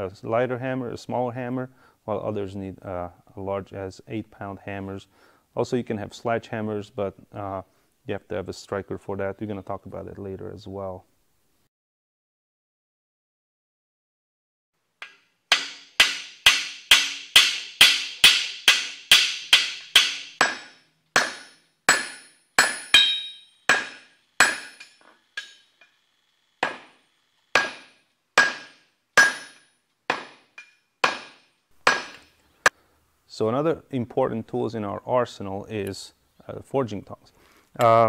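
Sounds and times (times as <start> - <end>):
hammer striking steel on anvil: 15.0 - 26.0, 26.6 - 32.3.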